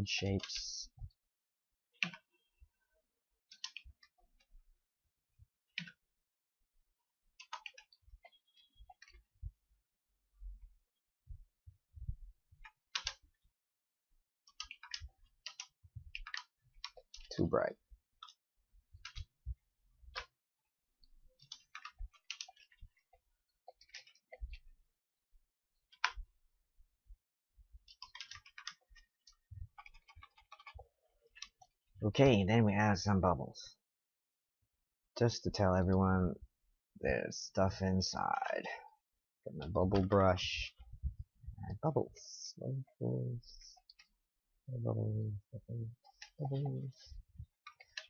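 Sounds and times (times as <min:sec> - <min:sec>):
computer mouse clicks: 0:03.5 - 0:04.1, 0:07.4 - 0:09.2, 0:12.6 - 0:13.2, 0:14.5 - 0:17.5, 0:19.0 - 0:19.4, 0:25.9 - 0:26.2, 0:27.9 - 0:30.8, 0:47.6 - 0:48.0.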